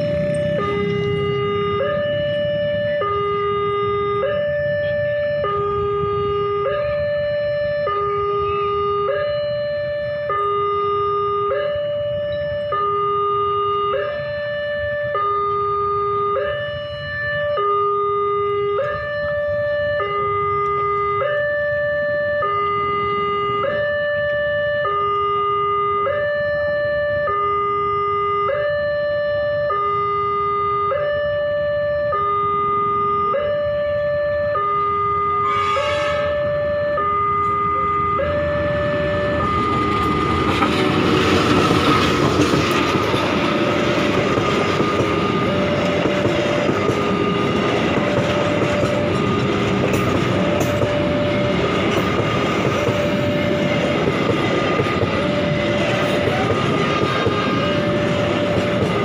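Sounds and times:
level crossing alarm: 0.0s - 59.0s
train rumble and wheel clatter: 0.0s - 59.0s
locomotive horn blast: 34.0s - 59.0s.

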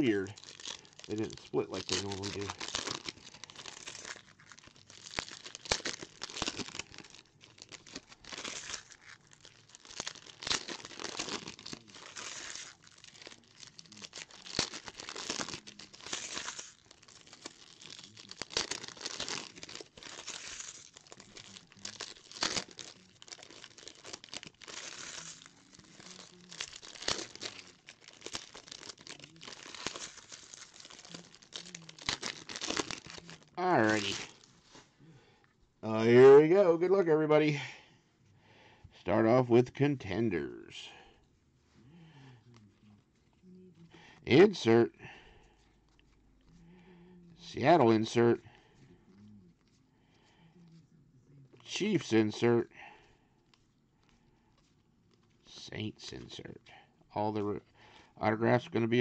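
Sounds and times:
foil wrappers tearing and crinkling: 0.0s - 34.8s.

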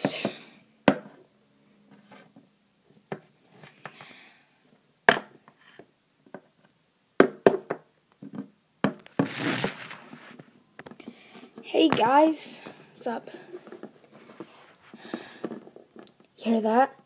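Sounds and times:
rustling scrape: 9.1s - 10.6s, 13.5s - 15.7s.

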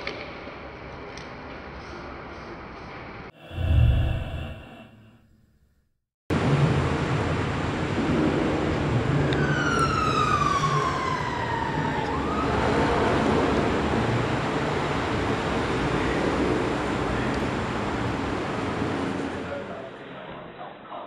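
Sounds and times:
traffic rumble: 6.3s - 20.0s
siren wailing: 9.3s - 13.8s.

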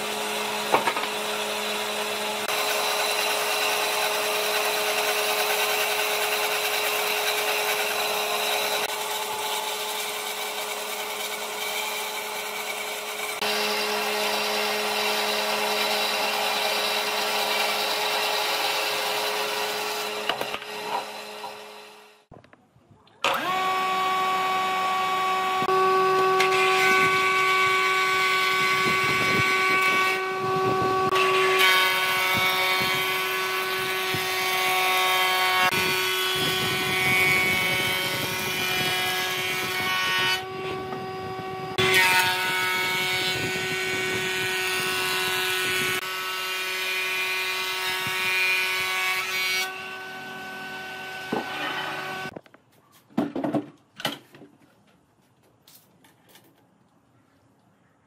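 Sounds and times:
boards being planed: 0.0s - 22.1s, 23.2s - 52.4s
electric planer whining: 0.0s - 22.2s, 23.2s - 52.4s.

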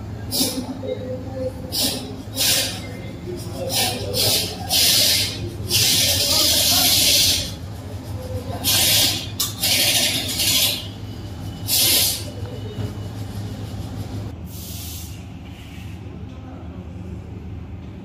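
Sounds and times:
steady low hum: 0.0s - 18.0s
hissing spray bursts: 1.7s - 2.9s, 3.7s - 7.5s, 11.7s - 12.3s, 14.5s - 15.2s.

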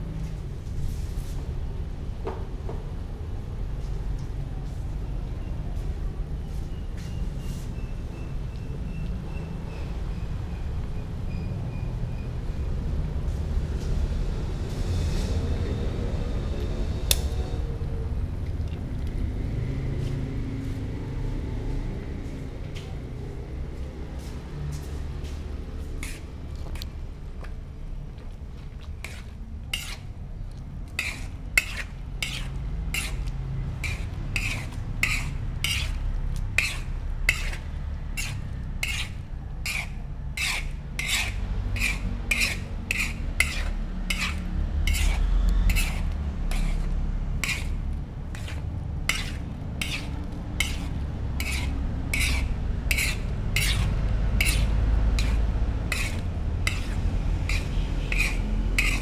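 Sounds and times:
metal spoon scraping a wok: 26.0s - 26.9s, 29.0s - 30.1s, 30.9s - 59.0s.

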